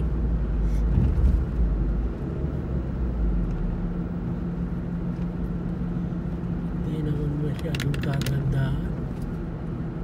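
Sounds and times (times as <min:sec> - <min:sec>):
car engine and tyre rumble: 0:00.0 - 0:10.0.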